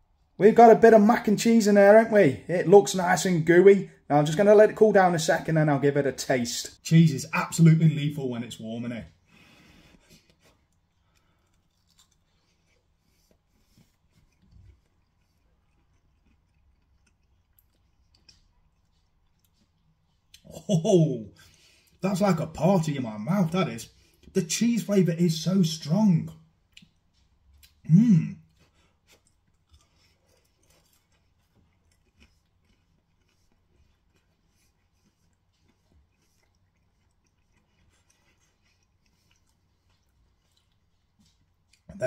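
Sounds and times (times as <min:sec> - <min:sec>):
faint chewing: 0:08.4 - 0:22.4, 0:26.3 - 0:42.0
crisp food crackling: 0:10.2 - 0:19.7
man's wordless vocal sound: 0:27.8 - 0:28.5.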